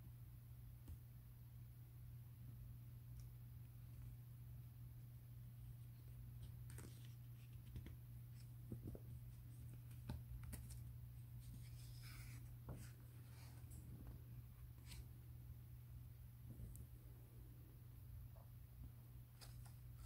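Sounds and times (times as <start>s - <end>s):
low steady hum: 0.0s - 20.0s
paper rustling: 6.3s - 13.8s, 19.3s - 20.0s.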